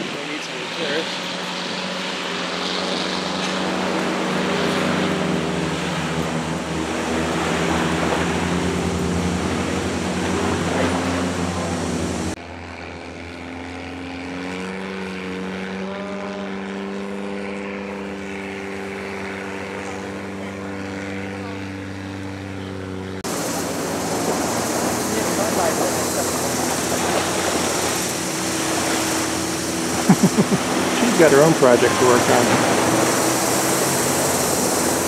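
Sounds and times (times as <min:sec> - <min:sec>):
boat engine droning: 0:00.0 - 0:35.0.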